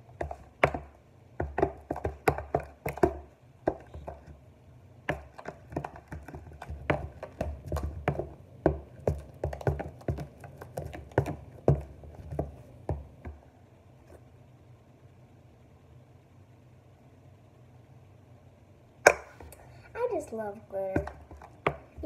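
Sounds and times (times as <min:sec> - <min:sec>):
dull thumps: 0:00.0 - 0:04.4, 0:05.0 - 0:13.4, 0:20.8 - 0:22.0
utensil knocking plastic tub: 0:00.2 - 0:04.4, 0:05.1 - 0:13.4, 0:21.0 - 0:22.0.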